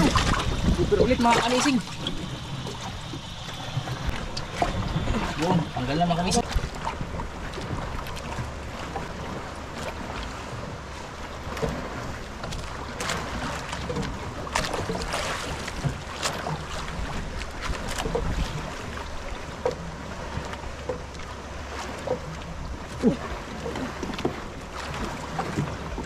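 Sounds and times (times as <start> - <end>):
wind rumbling on microphone: 0.0 - 20.6
short splashes and knocks: 0.0 - 26.0
water lapping against boat hull: 0.0 - 26.0.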